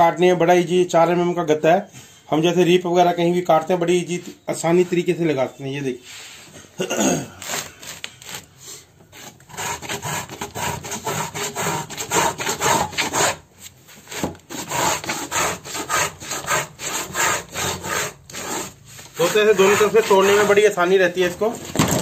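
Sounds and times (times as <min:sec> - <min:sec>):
marking gauge scratching wood: 0:09.1 - 0:13.4, 0:14.1 - 0:21.4.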